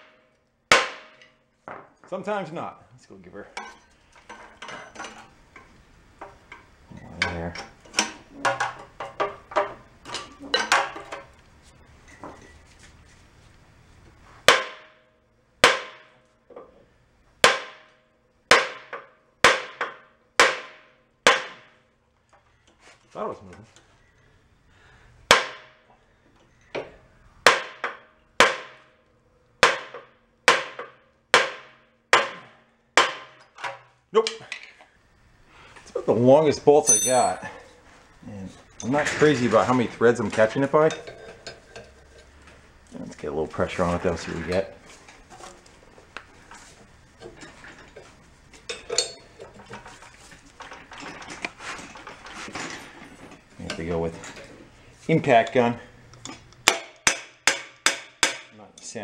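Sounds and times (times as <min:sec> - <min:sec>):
metal tools clinking: 0:36.8 - 0:37.8, 0:38.7 - 0:42.4, 0:47.3 - 0:49.9
loud ringing metal clank: 0:36.9 - 0:37.6.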